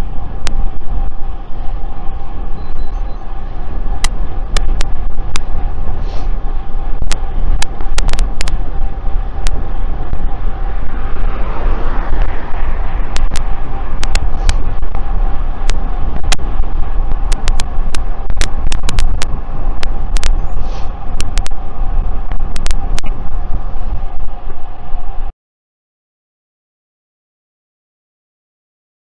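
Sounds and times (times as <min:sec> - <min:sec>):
low riding rush: 0:00.0 - 0:25.3
steady hum: 0:00.0 - 0:25.3
sharp audio crackles: 0:15.6 - 0:21.6.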